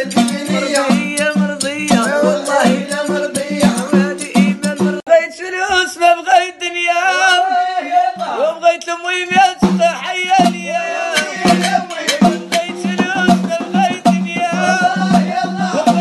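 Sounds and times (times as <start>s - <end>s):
percussion hits: 0.0s - 5.0s, 9.4s - 16.0s
man singing: 0.0s - 16.0s.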